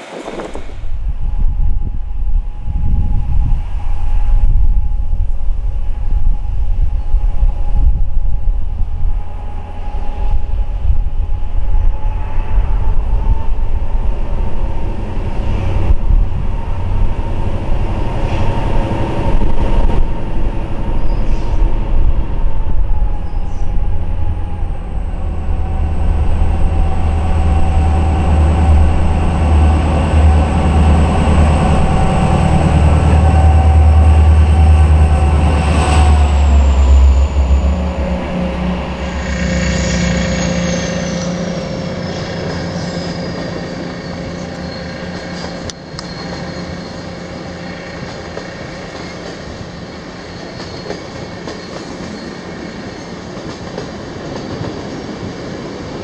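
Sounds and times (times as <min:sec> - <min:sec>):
train passing rumble: 0:00.0 - 0:56.0
steady high-pitched tone: 0:22.6 - 0:49.0.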